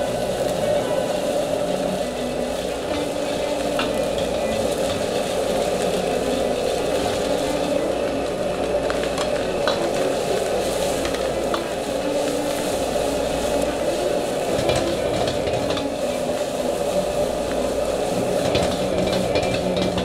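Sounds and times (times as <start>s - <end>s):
rice sizzling in a wok: 0.0s - 20.0s.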